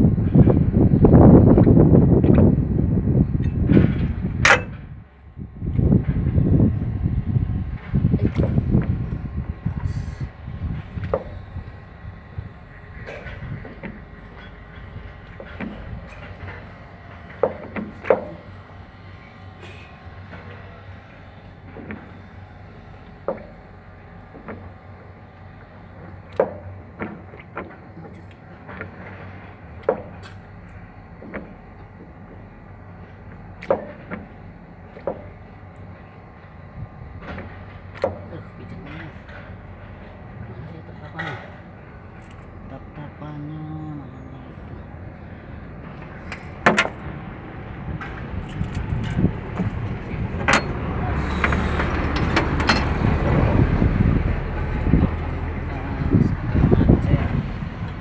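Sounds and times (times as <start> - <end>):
low steady rumble: 0.0 - 58.0
steady low hum: 0.0 - 58.0
metal gear clanking: 48.0 - 53.0
metal tools clinking on steel: 51.5 - 53.0.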